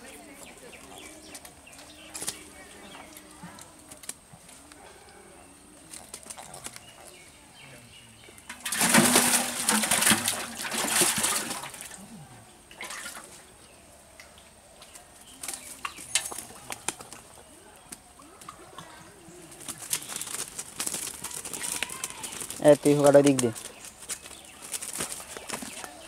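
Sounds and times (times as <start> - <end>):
fish splashing in a metal pot: 8.4 - 12.0, 12.7 - 13.3.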